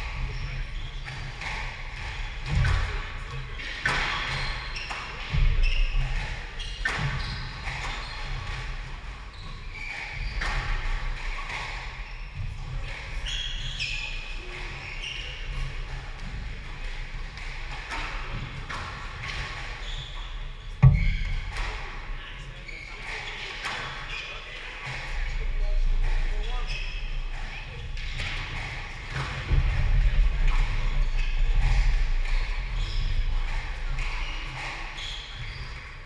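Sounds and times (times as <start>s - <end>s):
shoes squeaking on wooden floor: 0.0s - 10.7s, 18.4s - 28.6s, 31.0s - 36.0s
thuds of footwork: 20.8s - 22.0s.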